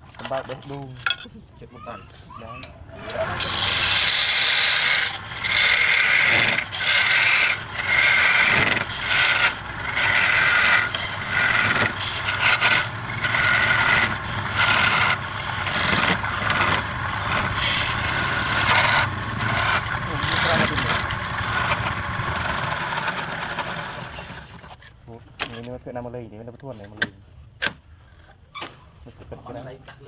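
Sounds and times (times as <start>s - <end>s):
turning tool scraping wood on lathe: 3.0s - 25.0s.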